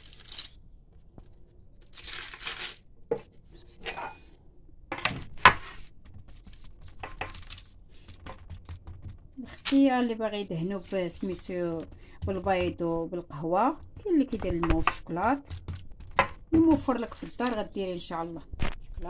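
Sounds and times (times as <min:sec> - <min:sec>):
baking paper rustling: 0:00.0 - 0:00.6, 0:01.8 - 0:02.9, 0:05.3 - 0:12.8.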